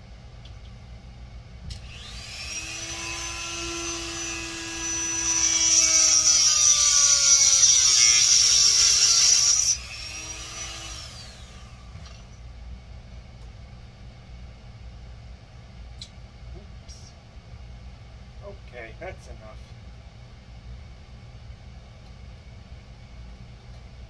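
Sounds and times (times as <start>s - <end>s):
rotary tool whining: 1.7s - 12.3s
rotary tool grinding coral: 1.9s - 11.5s.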